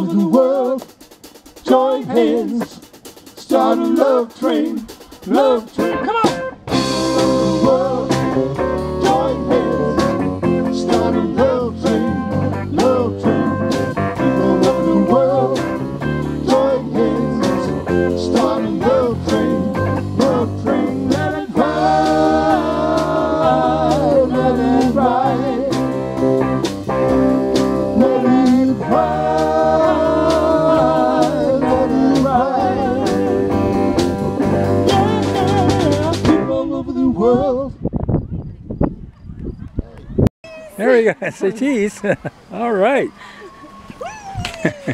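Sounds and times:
person singing lead vocal: 0.0 - 0.9, 1.6 - 26.4, 27.4 - 37.9
live rock band playing: 4.8 - 36.4.

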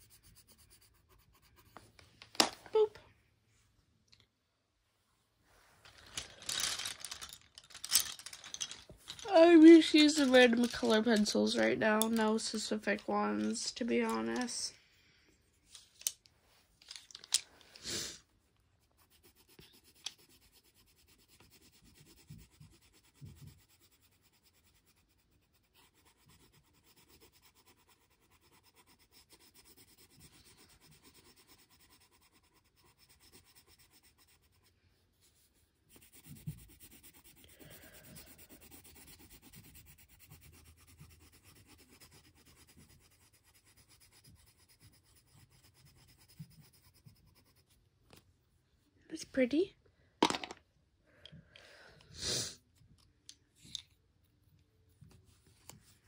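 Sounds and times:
pencil scratching on paper: 0.0 - 2.0, 18.8 - 47.8.

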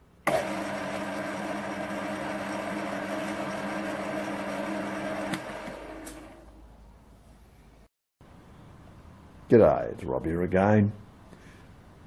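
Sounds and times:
motor machine humming: 0.3 - 6.6.

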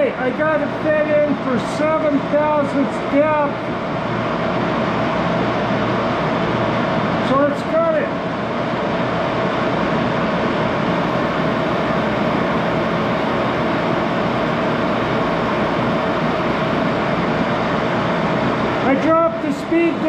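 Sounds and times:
faint constant hum: 0.0 - 20.0.

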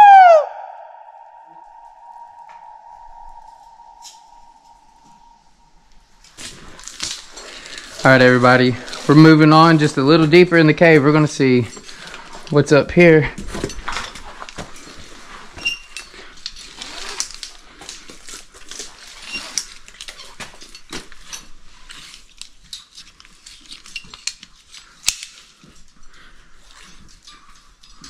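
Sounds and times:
climbing gear clinking: 13.4 - 28.0.

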